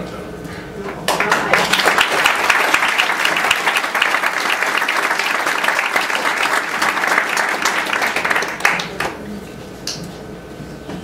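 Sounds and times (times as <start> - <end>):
audience applauding: 1.1 - 9.2.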